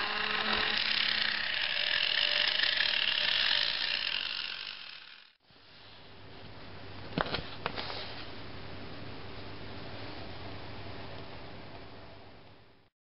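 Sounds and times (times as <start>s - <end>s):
motor tool whirring: 0.0s - 5.4s.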